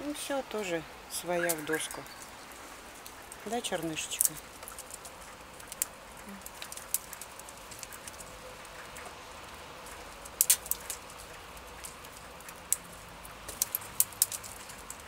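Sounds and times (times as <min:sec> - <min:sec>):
squirrel gnawing nut shell: 0:01.3 - 0:15.0.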